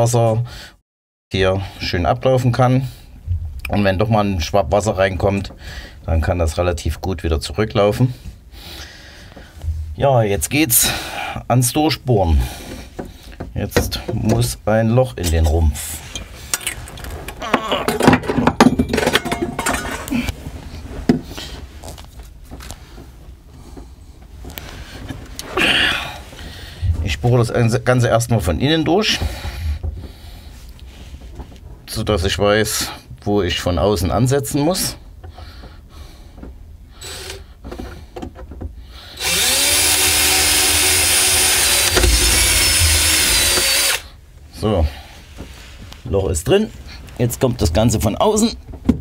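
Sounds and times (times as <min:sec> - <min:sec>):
tools and metal parts clinking: 0:17.9 - 0:20.3
electric drill whine: 0:39.2 - 0:44.1.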